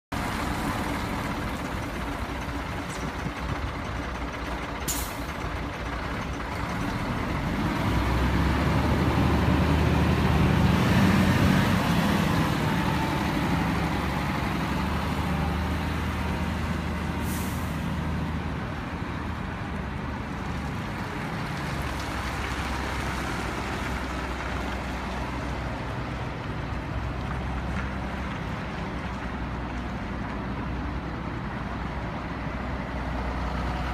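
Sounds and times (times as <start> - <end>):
diesel truck driving past: 0.1 - 33.9
air brake hisses: 17.2 - 17.8.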